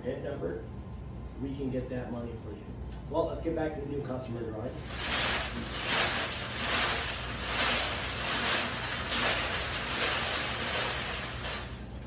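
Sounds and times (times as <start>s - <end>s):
paper slips rustling in raffle drum: 4.8s - 12.0s.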